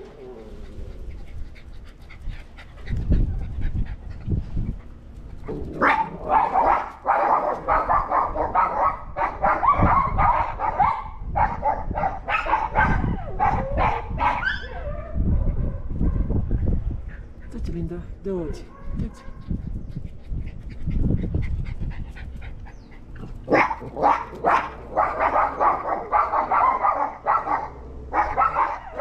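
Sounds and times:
dogs barking: 5.7s - 16.4s, 18.6s - 19.6s, 22.8s - 29.0s.

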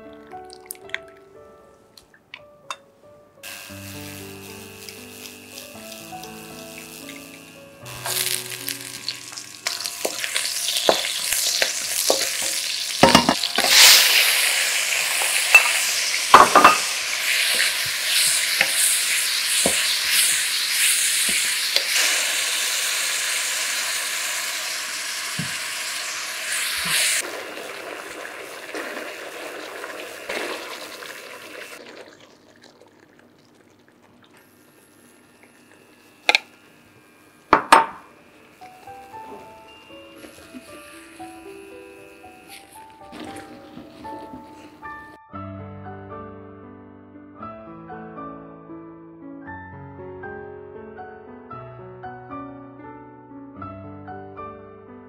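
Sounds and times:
vegetables sizzling in hot oil: 3.5s - 32.2s, 34.4s - 45.0s.

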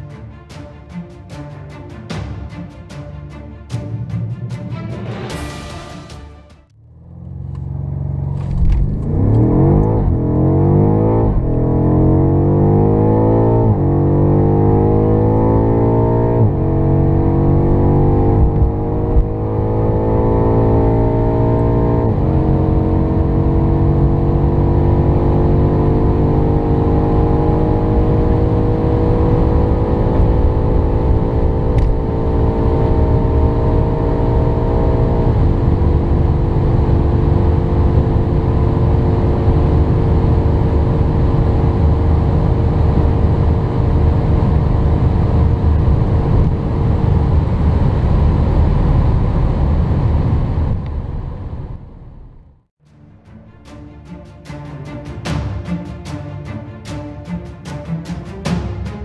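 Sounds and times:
car engine at full throttle: 6.7s - 52.7s
gearbox upshifts: 7.2s - 10.2s.

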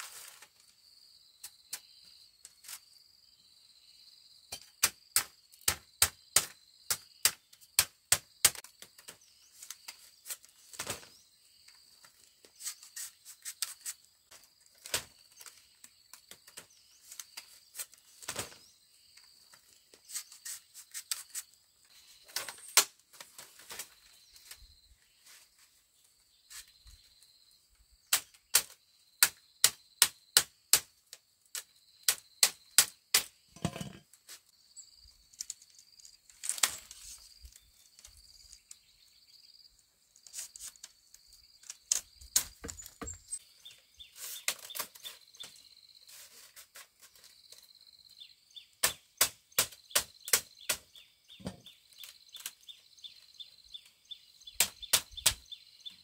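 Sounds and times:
hand tool knocking on bamboo: 33.6s - 34.0s.

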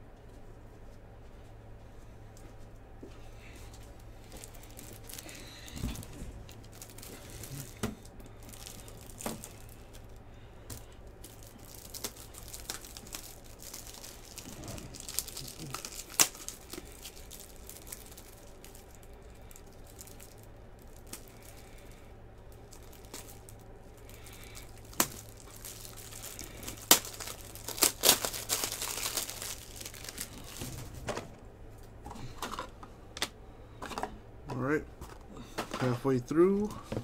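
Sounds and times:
plastic packaging crinkling: 3.8s - 31.0s.

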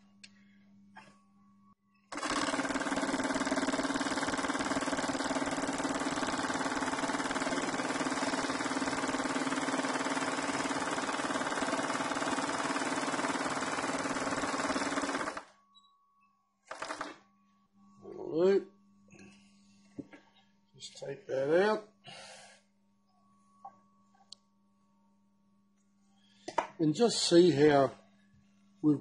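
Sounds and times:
overlocking machine stitching: 2.1s - 15.6s, 16.7s - 17.2s.

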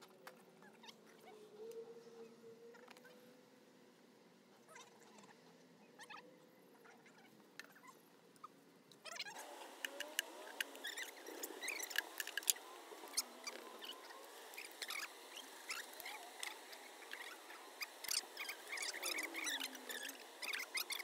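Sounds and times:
bee colony buzzing: 9.3s - 21.0s
bees humming past: 9.3s - 21.0s.

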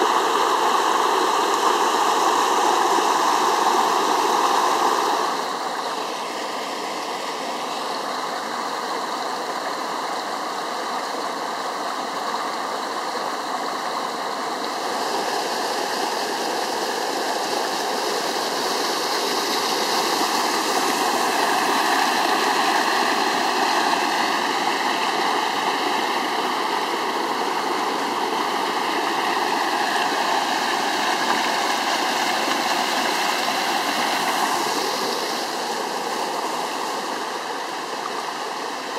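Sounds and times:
stream water rushing over cascades: 0.0s - 38.9s.

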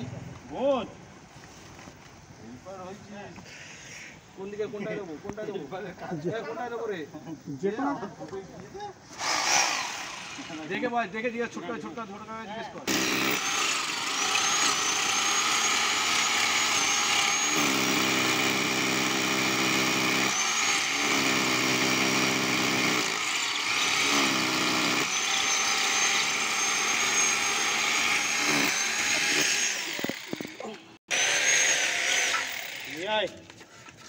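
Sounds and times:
angle grinder cutting brick: 9.2s - 10.7s, 12.8s - 33.1s.

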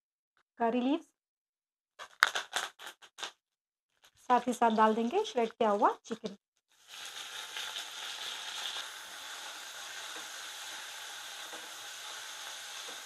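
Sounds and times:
chicken sizzling in hot oil: 6.7s - 13.0s.

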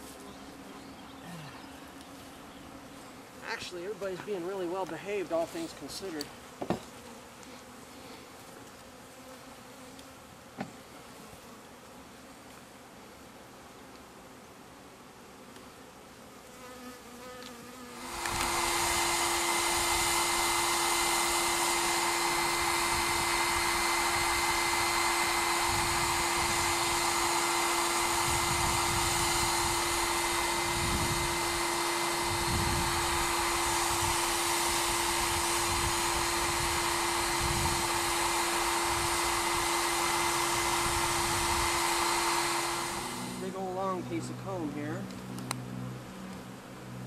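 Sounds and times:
vacuum humming: 0.0s - 7.0s, 17.9s - 47.0s
honeybees buzzing: 0.0s - 47.0s.

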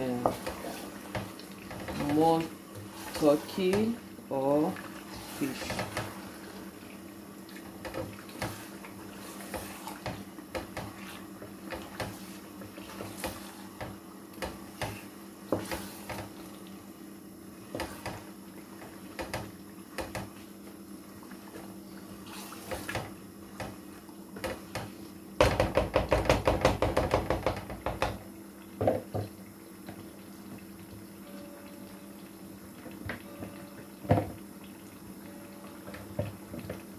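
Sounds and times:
wooden spoon stirring stew in pot: 0.1s - 6.7s, 7.8s - 16.4s.

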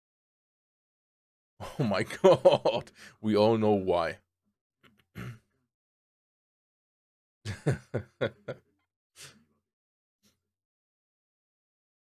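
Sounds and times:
man laughing: 1.6s - 2.9s, 7.5s - 8.7s.

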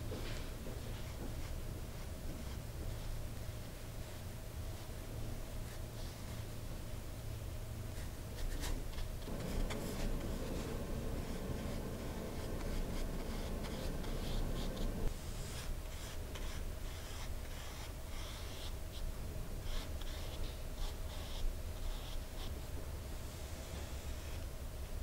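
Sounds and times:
paintbrush swishing on paper: 8.4s - 22.6s.

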